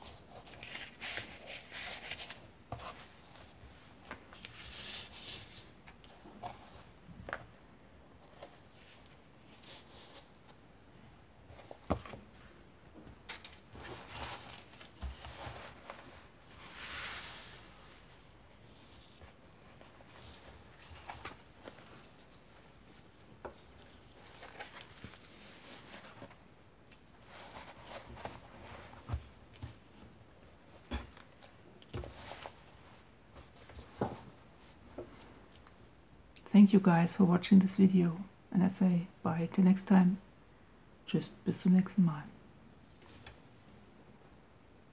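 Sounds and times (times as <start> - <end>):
paper pages rustling: 0.0 - 7.5, 13.2 - 26.4, 27.2 - 30.5.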